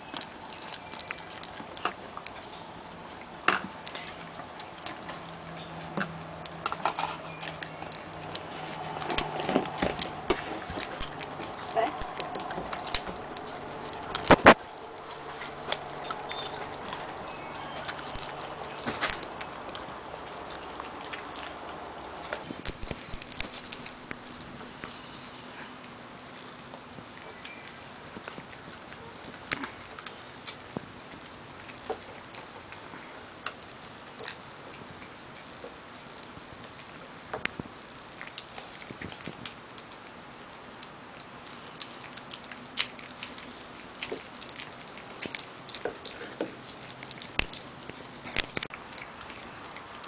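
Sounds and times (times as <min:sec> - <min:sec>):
dog chewing bone: 0:03.5 - 0:40.0
bone cracking: 0:06.4 - 0:21.6, 0:22.3 - 0:25.0, 0:48.3 - 0:50.0.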